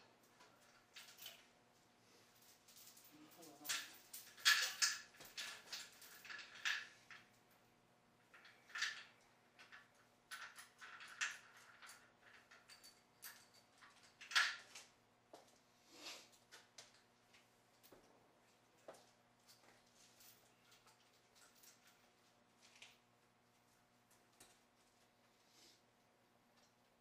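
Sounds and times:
steel chain clinking and rattling: 0:00.2 - 0:01.6, 0:02.2 - 0:07.6, 0:08.2 - 0:14.9, 0:19.4 - 0:23.0.

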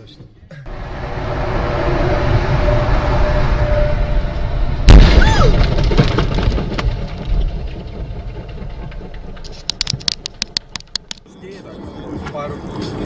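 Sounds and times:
road noise: 0:00.7 - 0:05.0, 0:05.6 - 0:13.0
tyre blowout bang: 0:04.9 - 0:06.8
sharp clicks: 0:09.4 - 0:11.2.

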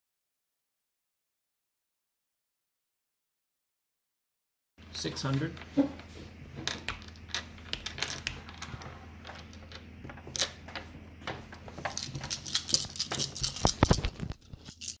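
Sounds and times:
wooden game pieces clicking: 0:06.6 - 0:10.8, 0:11.6 - 0:15.0.

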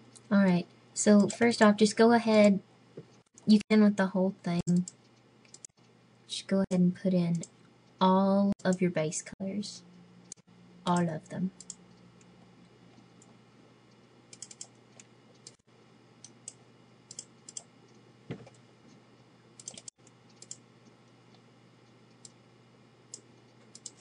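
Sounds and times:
faint low hum: 0:00.0 - 0:24.0
computer mouse clicking: 0:01.1 - 0:01.5, 0:04.6 - 0:05.9, 0:10.2 - 0:15.6, 0:16.2 - 0:19.0, 0:19.6 - 0:22.4, 0:23.1 - 0:24.0.

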